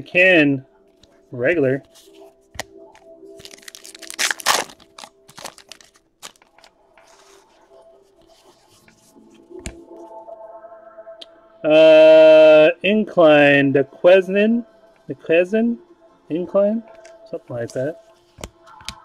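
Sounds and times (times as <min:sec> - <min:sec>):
faint background music: 0:00.0 - 0:19.0
trading cards rustling and clicking: 0:01.8 - 0:07.5.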